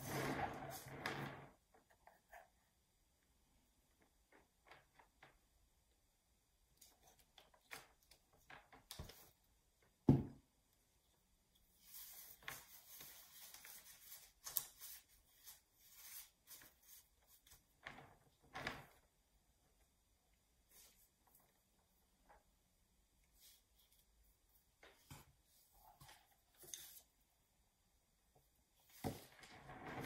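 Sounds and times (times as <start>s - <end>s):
rustling and scraping: 0.0s - 1.6s, 28.8s - 30.0s.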